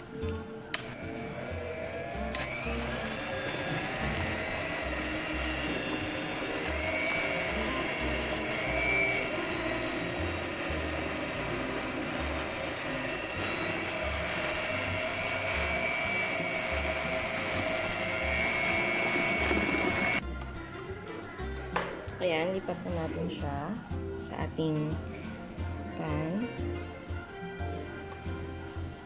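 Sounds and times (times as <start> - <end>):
electric hand mixer whirring: 0.8 - 20.2.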